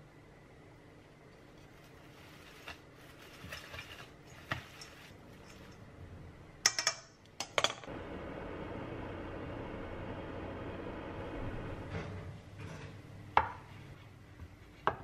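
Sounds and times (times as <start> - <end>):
salad rustling: 1.4 - 5.8.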